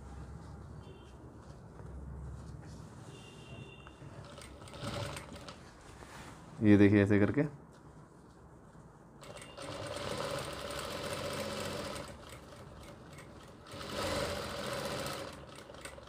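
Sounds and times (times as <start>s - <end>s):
sewing machine stitching: 4.2s - 5.6s, 9.2s - 16.0s.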